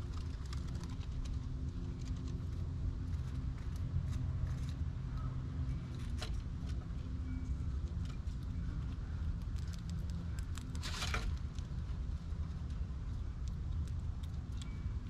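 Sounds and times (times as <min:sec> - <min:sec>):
faint hum: 0:00.0 - 0:15.0
low outdoor rumble: 0:00.0 - 0:15.0
squirrel clicks and taps: 0:09.3 - 0:11.8.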